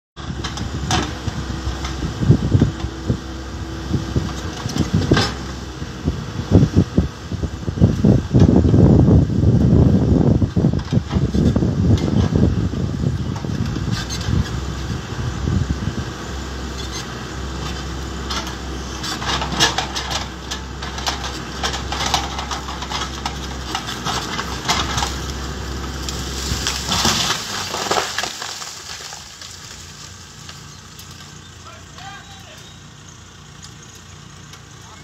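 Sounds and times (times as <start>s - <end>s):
backhoe engine running: 0.2s - 35.0s
wood cracking and snapping: 19.2s - 31.4s
tree falling onto machine: 19.2s - 32.6s.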